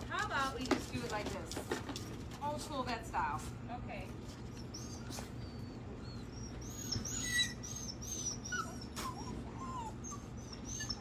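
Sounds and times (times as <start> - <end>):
puppies whining: 4.2 - 11.0.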